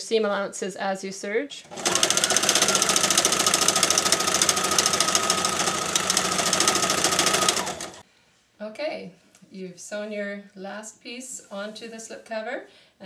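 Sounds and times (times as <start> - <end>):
overlock sewing machine running: 1.7 - 8.0.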